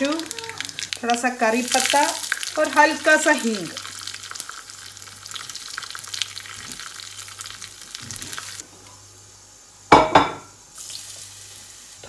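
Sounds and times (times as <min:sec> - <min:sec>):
oil popping: 0:00.0 - 0:08.6
spices sizzling in hot oil: 0:00.0 - 0:12.0.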